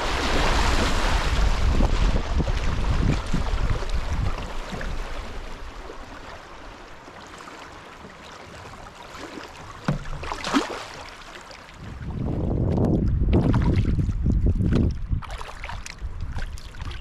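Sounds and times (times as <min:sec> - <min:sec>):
wind rumbling on microphone: 0:00.0 - 0:06.2, 0:11.7 - 0:17.0
paddle splashes: 0:00.0 - 0:17.0.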